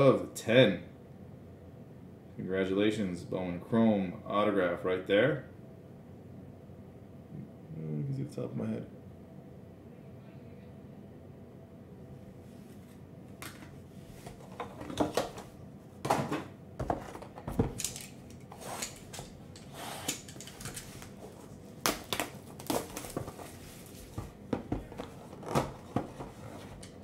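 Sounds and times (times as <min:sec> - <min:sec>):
plastic wrap crinkling and tearing: 0:20.8 - 0:25.6
cardboard scraping: 0:22.4 - 0:26.8.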